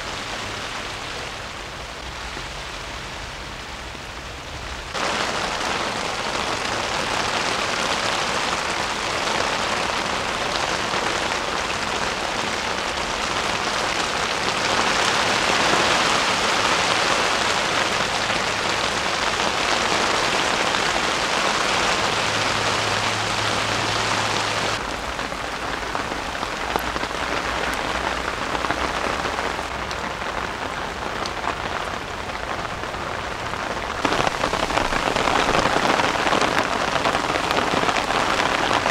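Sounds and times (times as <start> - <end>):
heavy rain on a tent: 0.0 - 38.9.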